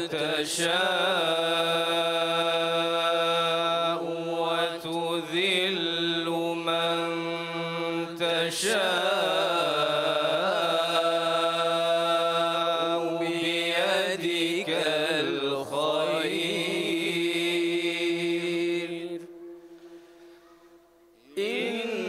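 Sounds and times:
men and boys chanting together: 0.0 - 18.9, 21.4 - 22.0.

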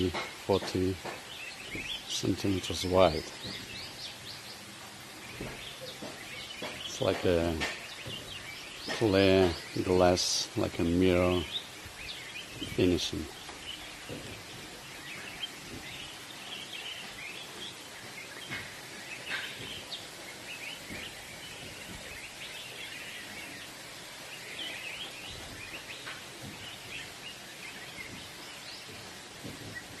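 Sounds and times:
background hiss: 0.0 - 30.0
small birds chirping: 0.0 - 30.0.

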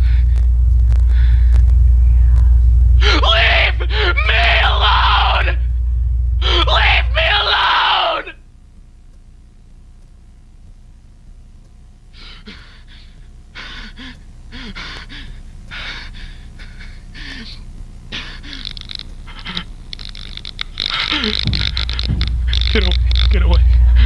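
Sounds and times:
man breathing heavily in panic: 0.0 - 1.6, 3.0 - 4.2, 12.2 - 18.7
steady low hum: 0.0 - 24.0.

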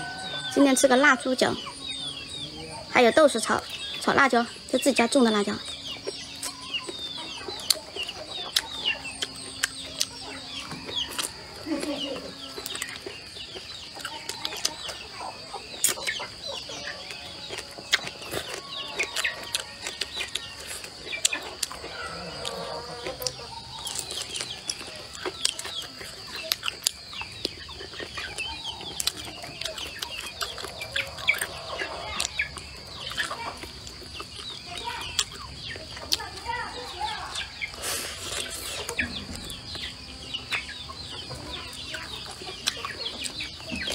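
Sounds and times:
chickens clucking: 0.0 - 43.9
chewing and mouth sounds: 5.6 - 11.9, 15.8 - 16.2, 17.0 - 36.5, 41.7 - 43.9.

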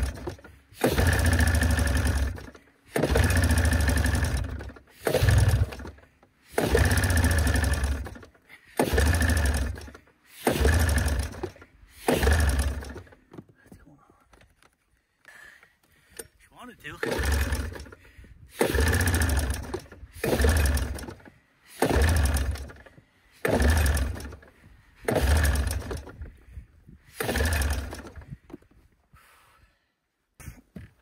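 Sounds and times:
recoil pull starter yanked: 0.0 - 13.5, 17.0 - 26.3, 27.1 - 28.7
engine cranking without catching: 0.0 - 13.6, 15.9 - 28.9.

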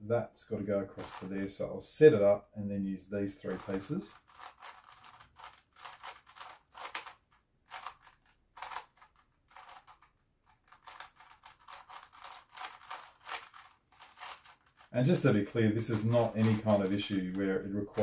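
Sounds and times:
puzzle cube plastic clicks: 3.4 - 14.9, 15.9 - 18.0.

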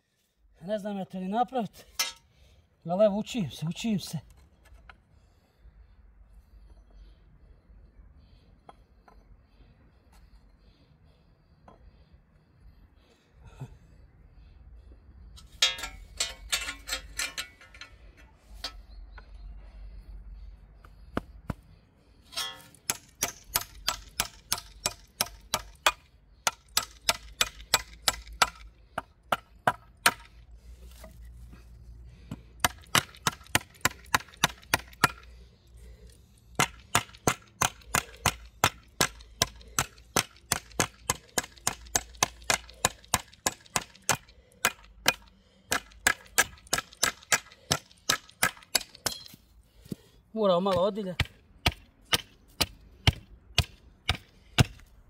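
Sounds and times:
claw hammer striking wooden handle: 22.4 - 30.3, 36.6 - 49.4, 50.7 - 54.8.

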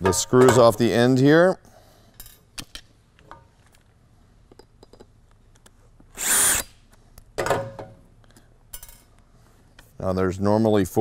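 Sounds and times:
cordless drill running: 6.2 - 6.7.

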